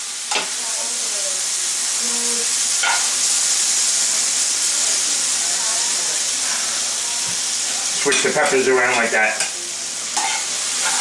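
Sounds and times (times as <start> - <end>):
vegetables sizzling in skillet: 0.0 - 11.0
tongs clacking against pan: 2.8 - 3.1, 10.2 - 11.0.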